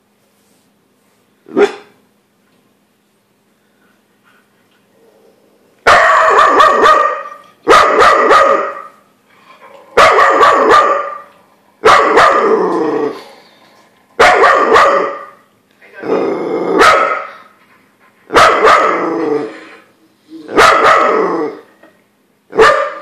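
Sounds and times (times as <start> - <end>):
dog barking: 1.5 - 2.0, 5.9 - 9.0, 10.0 - 12.5, 14.2 - 15.4, 16.8 - 17.4, 18.3 - 19.0, 20.6 - 21.2, 22.5 - 23.0.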